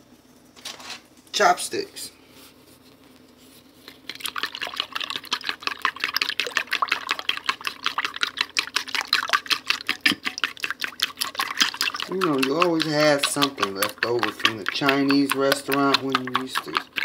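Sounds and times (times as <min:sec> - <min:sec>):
chopsticks whisking eggs in a bowl: 0:03.8 - 0:17.0.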